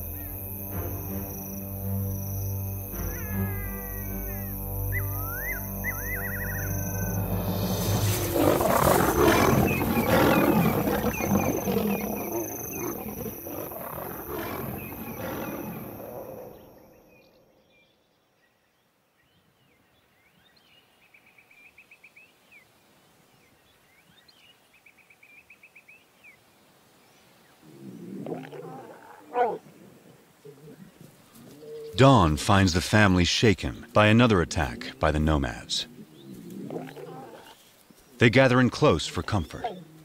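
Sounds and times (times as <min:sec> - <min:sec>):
faint chirps with rapid trills: 0:00.0 - 0:17.6
lions roaring: 0:05.3 - 0:16.7, 0:27.6 - 0:32.0, 0:35.9 - 0:37.6.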